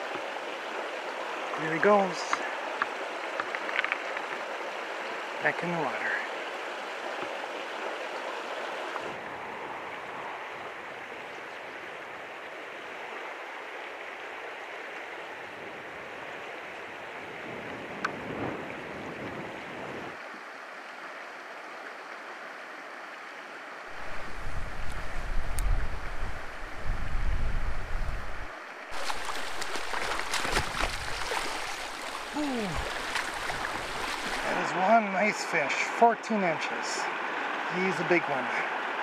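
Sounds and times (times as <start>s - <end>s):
creek running over stones: 0.0s - 27.0s, 27.7s - 39.0s
wind buffeting microphone: 23.9s - 34.5s.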